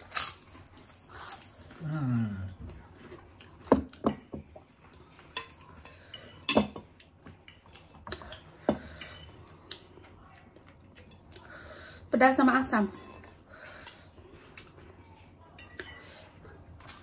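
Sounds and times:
cutlery clinking against plates: 0:05.1 - 0:09.5, 0:15.5 - 0:17.0.

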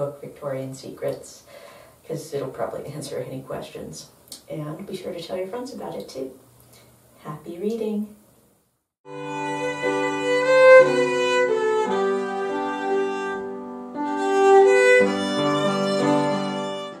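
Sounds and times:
bowed strings with violin lead: 0:09.1 - 0:17.0.

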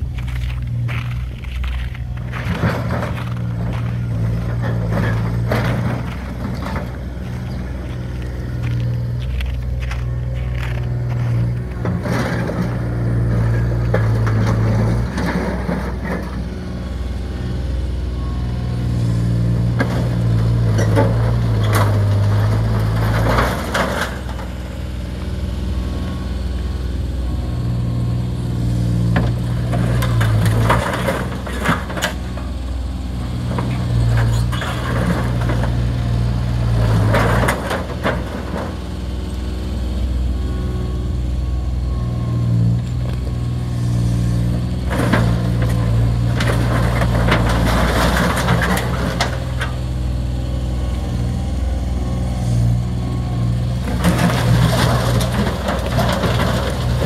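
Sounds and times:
metal crunching and cracking: 0:00.0 - 0:16.4, 0:44.7 - 0:49.9, 0:53.7 - 0:57.0
loader engine running: 0:00.0 - 0:57.0.

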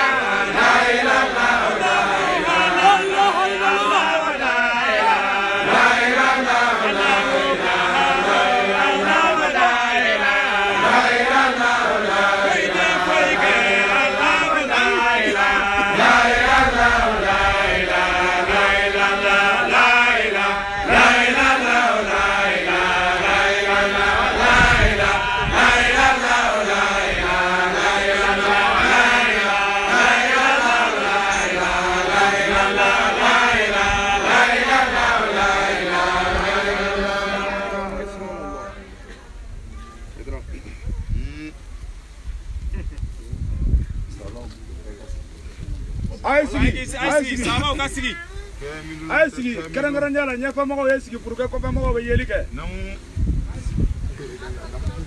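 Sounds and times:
voices chanting together: 0:00.0 - 0:39.3, 0:46.3 - 0:48.2.

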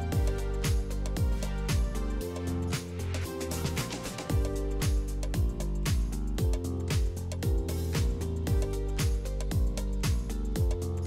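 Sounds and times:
kick drum: 0:00.0 - 0:02.2, 0:04.3 - 0:11.0
electronic music: 0:00.0 - 0:11.0.

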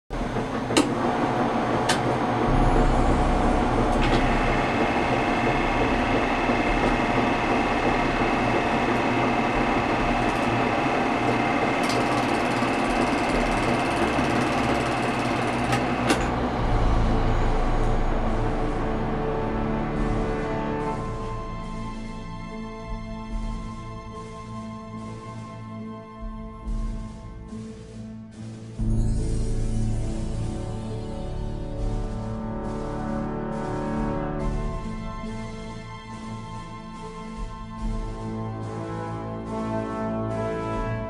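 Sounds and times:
film projector whirr and clatter: 0:00.1 - 0:22.1.

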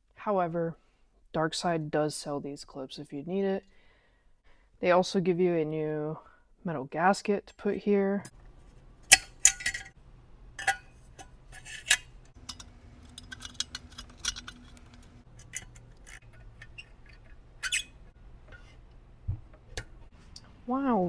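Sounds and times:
metal clamp clicks and clinks: 0:11.6 - 0:17.8.

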